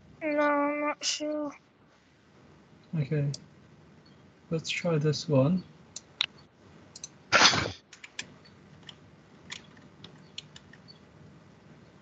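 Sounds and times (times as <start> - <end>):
keyboard and mouse clicks: 6.0 - 7.2, 7.9 - 11.0.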